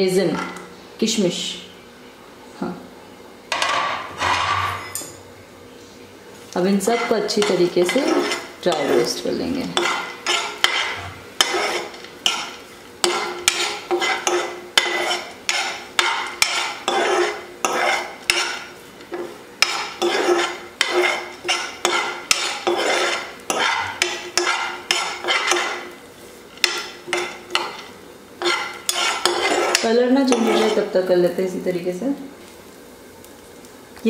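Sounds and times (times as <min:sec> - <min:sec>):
spoon scraping a frying pan: 0:03.6 - 0:05.2, 0:06.7 - 0:31.0.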